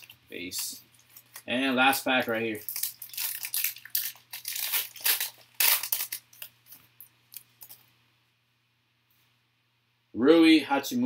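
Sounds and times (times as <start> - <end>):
foil pack tearing and crinkling: 0.0 - 6.5.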